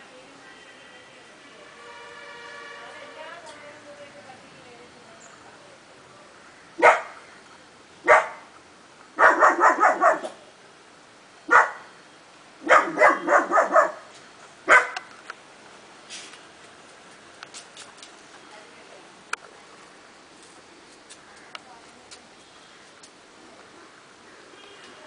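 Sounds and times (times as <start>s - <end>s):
puppy barking: 6.8s - 7.2s, 8.1s - 8.4s, 9.2s - 10.4s, 11.5s - 11.8s, 12.6s - 14.1s, 14.7s - 15.1s.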